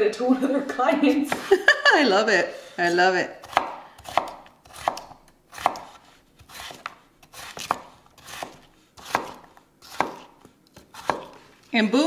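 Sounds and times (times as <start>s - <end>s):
knife chopping on wooden board: 3.4s - 11.5s.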